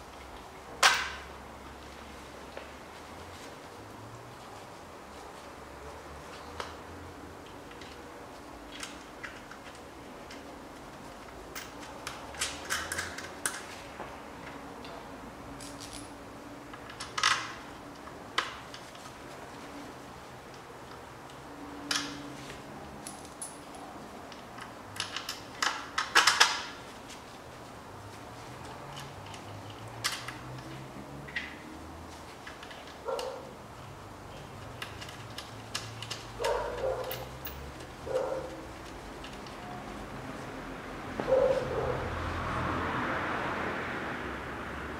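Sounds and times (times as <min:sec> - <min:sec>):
metal tools clinking: 0:34.3 - 0:38.6.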